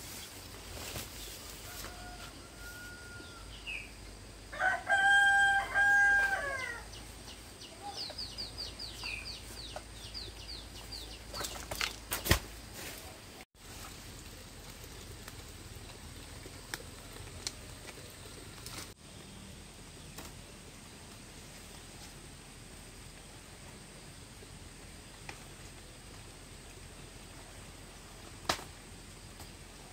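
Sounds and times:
low steady background noise: 0.0s - 29.9s
rooster crowing: 1.4s - 3.6s, 4.5s - 7.0s
small bird chirping: 6.9s - 12.0s.

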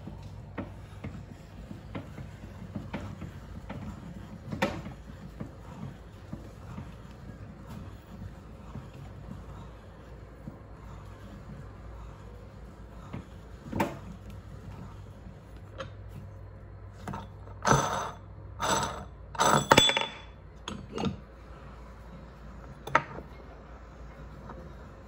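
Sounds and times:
metal clinks and scrapes: 17.1s - 21.2s.

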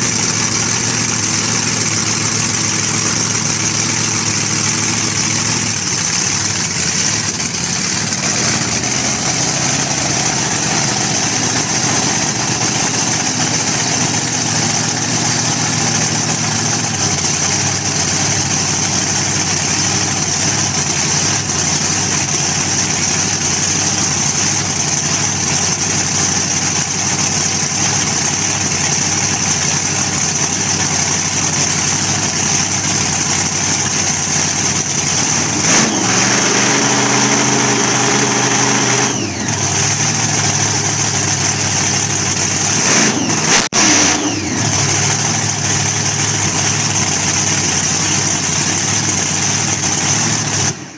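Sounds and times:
engine revving loudly: 0.0s - 18.4s, 35.1s - 40.6s, 42.3s - 50.9s.

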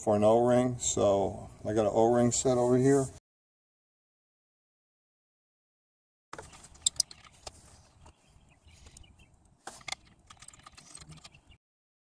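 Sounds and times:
small sharp clicks and knocks: 6.4s - 8.2s, 8.8s - 11.6s
rustle of handling: 6.4s - 11.3s.

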